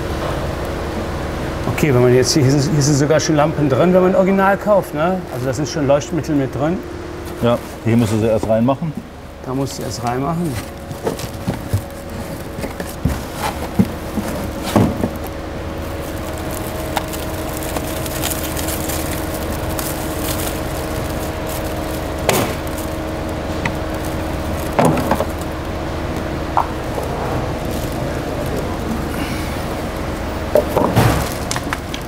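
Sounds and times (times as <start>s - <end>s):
plastic wrap crinkling: 3.7s - 32.0s
cardboard packaging rustling: 7.2s - 32.0s.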